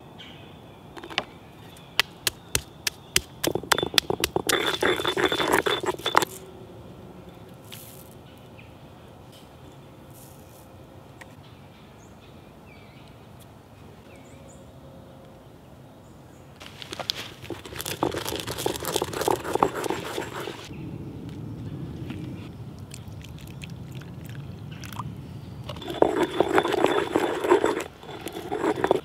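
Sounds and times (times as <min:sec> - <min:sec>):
pestle grinding in stone mortar: 0:02.0 - 0:06.4, 0:17.3 - 0:20.7, 0:25.7 - 0:29.0.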